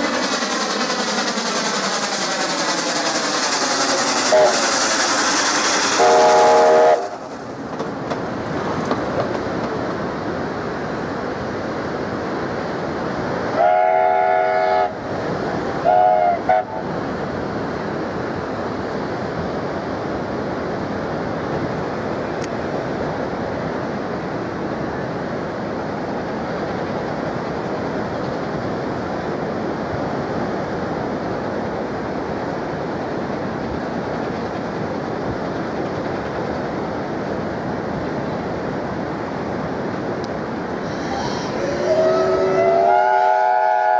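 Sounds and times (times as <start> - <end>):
steam locomotive whistle: 4.2 - 4.8, 5.9 - 7.2, 13.6 - 15.0, 15.8 - 16.9, 40.9 - 43.9.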